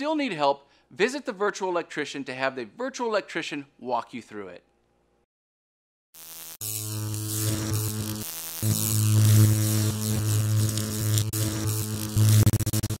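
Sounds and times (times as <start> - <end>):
electric buzz with crackle: 6.2 - 13.0.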